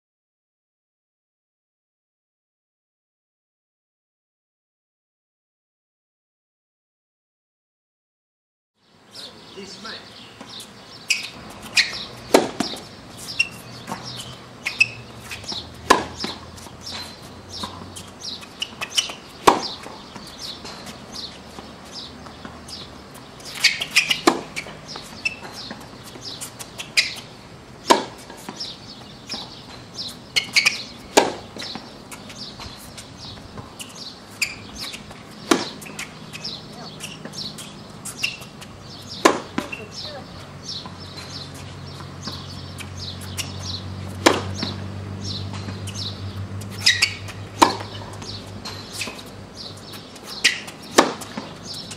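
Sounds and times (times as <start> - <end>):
small birds chirping: 8.8 - 51.9
tennis racket hitting ball: 10.4 - 51.9
ball bouncing: 11.2 - 28.7, 34.6 - 40.2, 42.0 - 45.9, 46.5 - 51.9.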